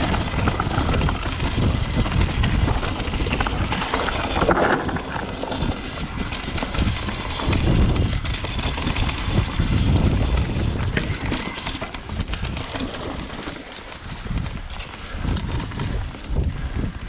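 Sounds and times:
bike rattling over roots: 0.0 - 17.0
bike tyres rumbling on dirt: 0.0 - 17.0.

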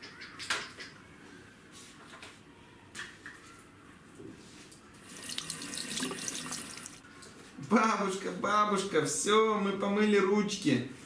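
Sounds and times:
plastic toys clicking and knocking: 0.0 - 1.0
running tap hiss: 5.0 - 7.0.

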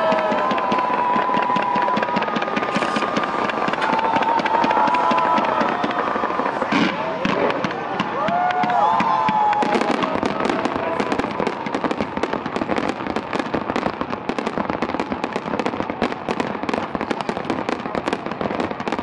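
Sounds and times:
fireworks crackling pops: 0.0 - 19.0.

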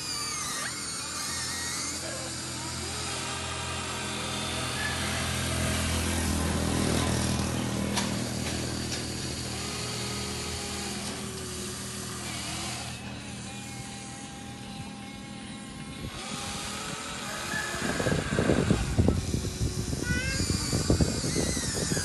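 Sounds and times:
electric motors whining: 0.0 - 22.0.

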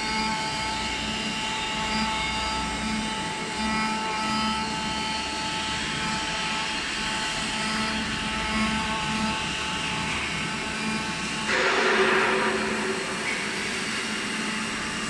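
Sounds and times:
cnc router whine: 0.0 - 15.0
low pulsing: 7.2 - 15.0.

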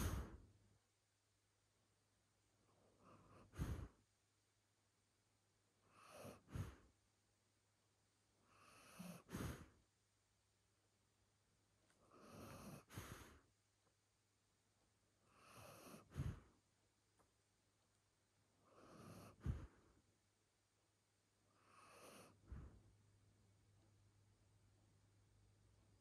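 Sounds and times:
dog breathing in sleep: 0.0 - 0.5, 2.8 - 4.0, 5.8 - 7.0, 8.4 - 9.8, 12.0 - 13.5, 15.2 - 16.6, 18.6 - 20.0, 21.5 - 22.9.

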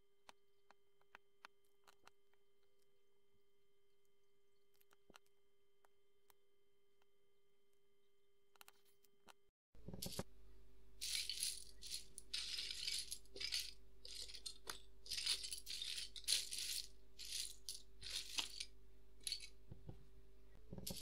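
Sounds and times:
faint steady hum: 0.0 - 21.0
plastic bricks rattling: 11.0 - 19.6.

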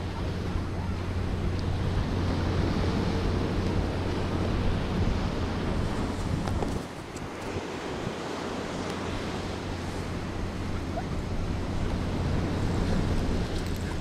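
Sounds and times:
sea surf rushing: 0.0 - 14.0
wind: 0.0 - 14.0
wind rumbling on microphone: 0.0 - 14.0.

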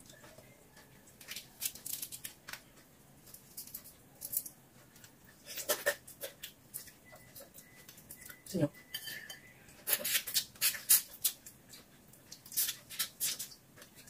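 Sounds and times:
shrimp shells crackling: 1.2 - 4.6.

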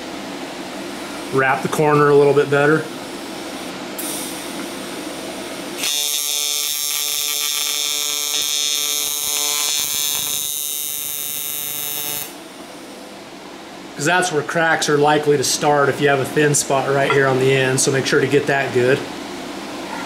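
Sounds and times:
welding arc buzzing: 0.9 - 12.9.

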